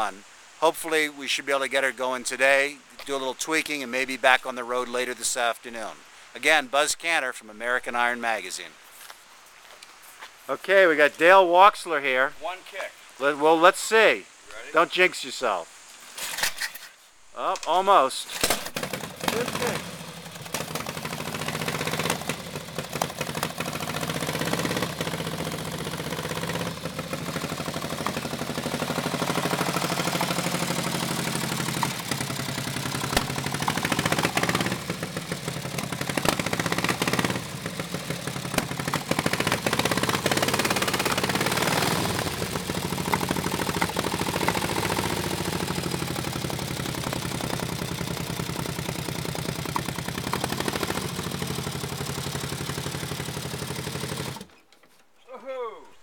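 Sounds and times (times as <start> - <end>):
motorcycle engine revving: 18.4 - 54.6.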